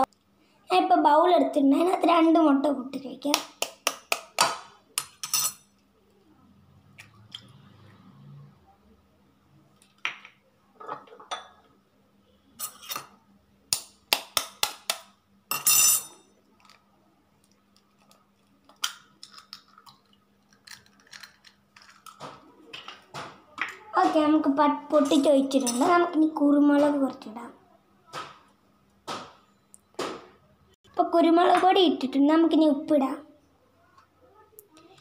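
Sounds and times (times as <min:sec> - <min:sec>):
eggshells breaking over bowl: 0:17.7 - 0:23.0.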